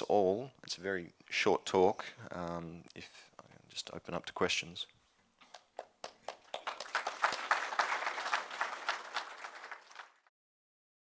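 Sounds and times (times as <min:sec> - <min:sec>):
audience applauding: 0:05.6 - 0:10.3.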